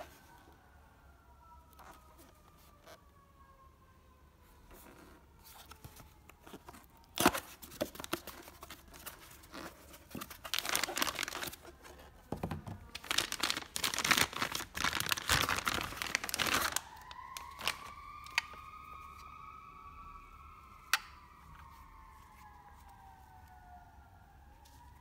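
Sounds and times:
plastic bag crinkling and tearing: 6.7 - 12.2, 12.8 - 18.5.

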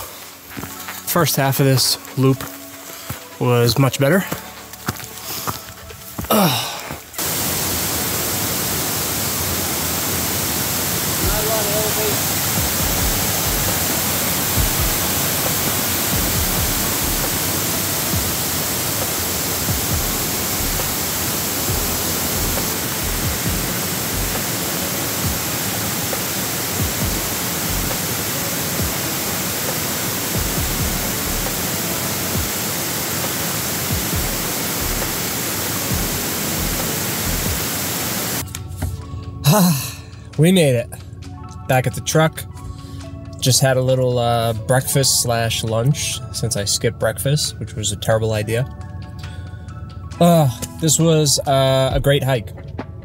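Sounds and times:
waterfall rushing: 6.2 - 38.4.

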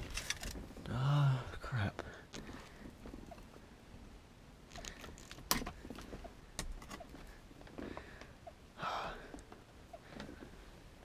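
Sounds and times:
rustling: 0.0 - 0.9.

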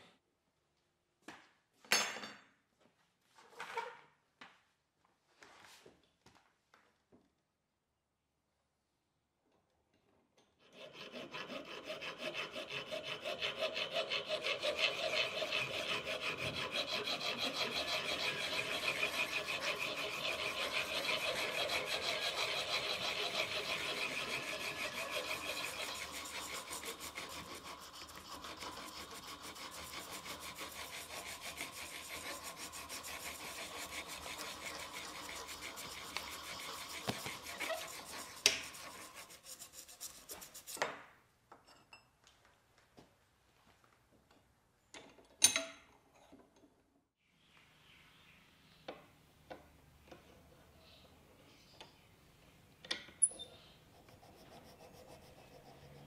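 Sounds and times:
hand file scraping metal: 10.6 - 40.8, 53.3 - 56.0.

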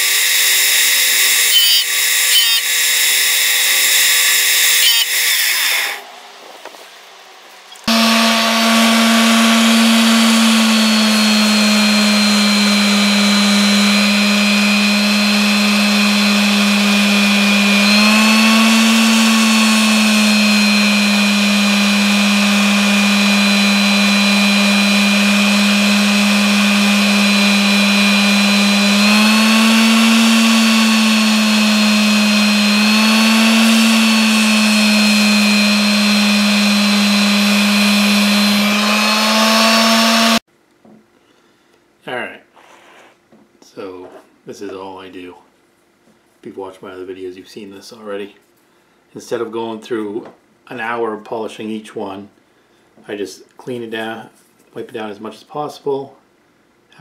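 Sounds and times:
electric sander running: 0.0 - 6.0, 7.8 - 40.5.

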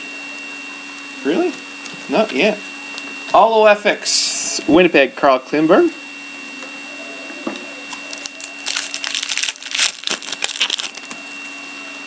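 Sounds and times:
steady hum: 0.0 - 12.0
foil wrapper crackling: 7.9 - 11.2.

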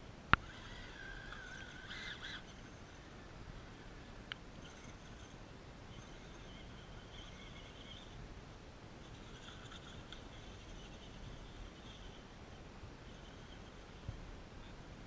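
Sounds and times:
electric motor whine: 0.3 - 8.2.

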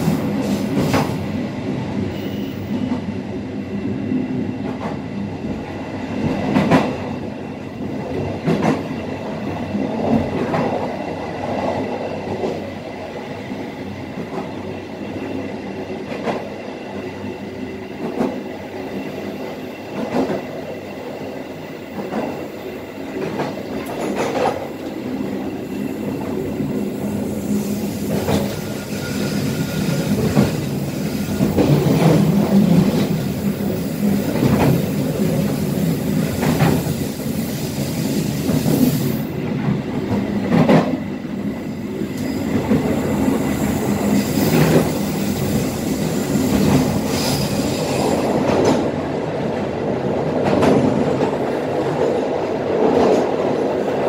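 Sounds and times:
train wheels rumbling and rattling: 0.0 - 3.2, 4.0 - 54.0
thin wheel squeal: 28.6 - 30.2.

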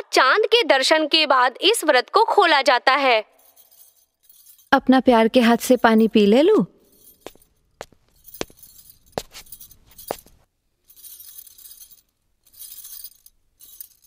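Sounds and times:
soft high jingling: 3.3 - 14.0
sharp glass or metal clinks: 6.8 - 14.0.

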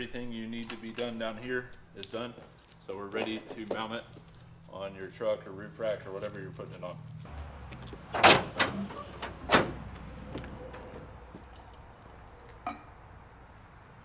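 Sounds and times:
tailgate metal clunks: 8.1 - 9.9.

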